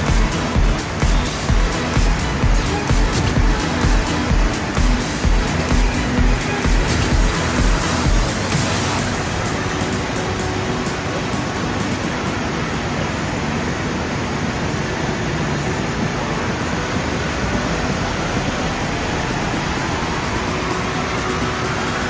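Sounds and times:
water rushing: 0:00.0 - 0:22.0.

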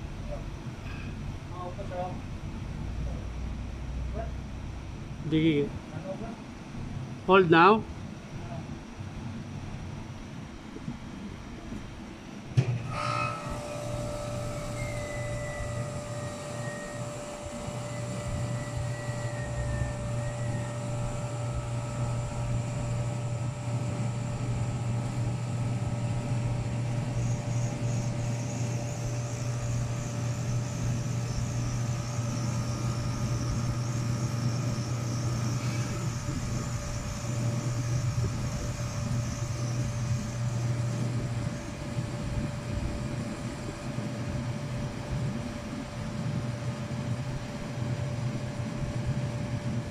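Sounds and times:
low machine drone: 0:00.0 - 0:49.9
faint high whine: 0:11.2 - 0:49.9.

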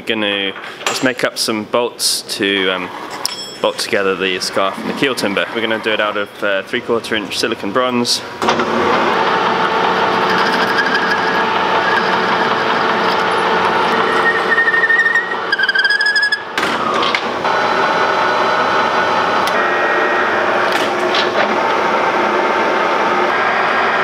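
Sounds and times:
metal lathe running: 0:02.6 - 0:06.6, 0:08.4 - 0:24.0
high whine from cutting: 0:08.6 - 0:16.5, 0:17.4 - 0:24.0.

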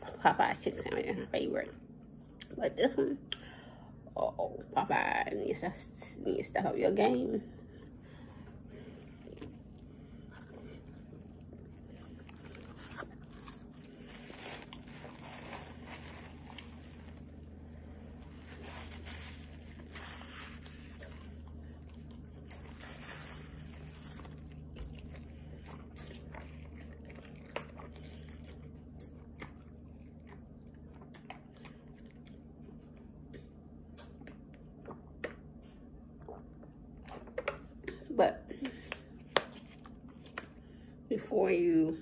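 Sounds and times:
low steady hum: 0:00.0 - 0:42.0
person chewing sandwich: 0:07.7 - 0:33.3.

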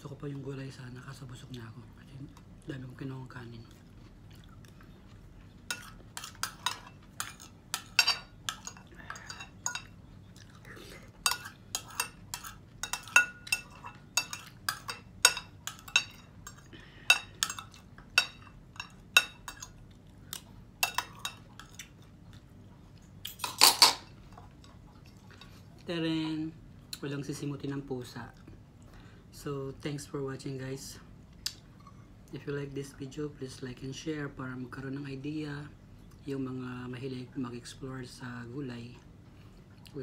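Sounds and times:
cutlery scraping a ceramic plate: 0:11.2 - 0:19.7.

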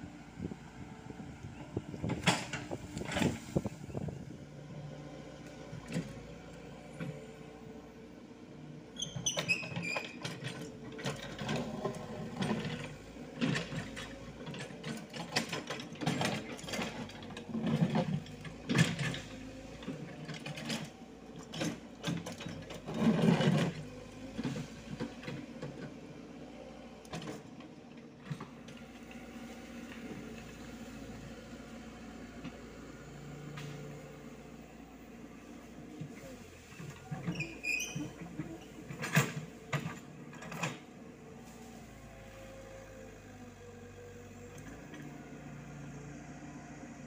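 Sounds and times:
excavator engine running: 0:00.0 - 0:47.0
bucket and tracks clanking: 0:09.2 - 0:25.9, 0:36.0 - 0:42.3.

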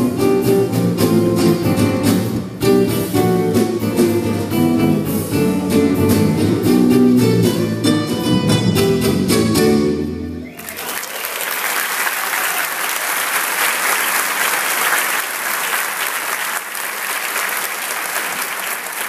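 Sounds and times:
audience applauding: 0:10.4 - 0:19.0.

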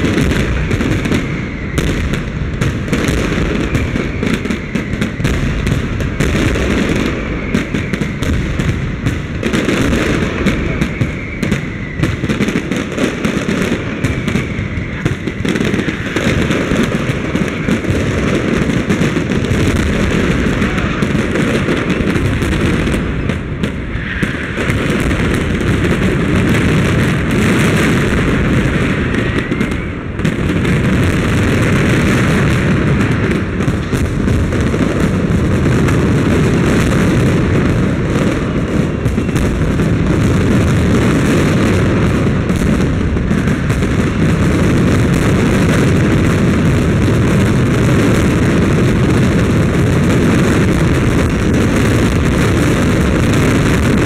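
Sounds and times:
faint rising firework whistles: 0:00.0 - 0:34.0, 0:37.9 - 0:46.7
fireworks bursting and crackling: 0:00.0 - 0:54.0.

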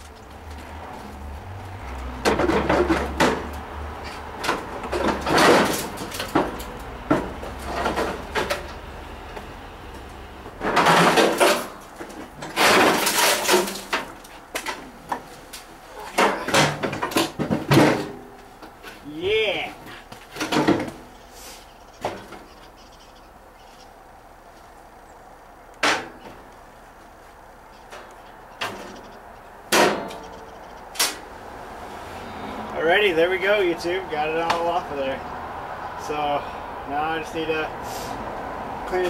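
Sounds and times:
sheet metal clanking and scraping: 0:01.9 - 0:08.8, 0:10.6 - 0:15.2, 0:15.9 - 0:18.3, 0:20.3 - 0:21.1, 0:29.7 - 0:30.4.

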